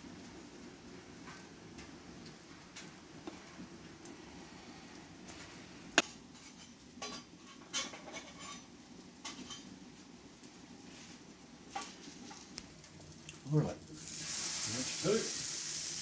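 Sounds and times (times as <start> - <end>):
faint steady hum: 0.0 - 7.6.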